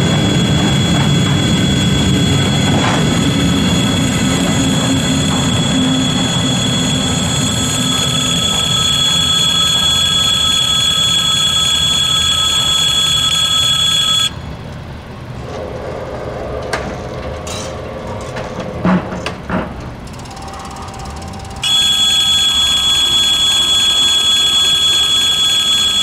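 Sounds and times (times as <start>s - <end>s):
electric bell ringing: 0.0s - 14.4s, 20.2s - 26.0s
low hum: 0.0s - 18.6s, 20.0s - 25.2s
freight train rumbling: 0.0s - 21.8s.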